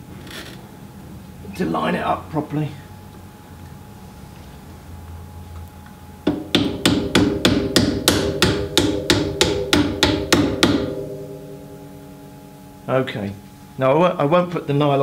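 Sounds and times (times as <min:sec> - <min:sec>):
mallet tapping steel bolt: 0:06.3 - 0:11.0.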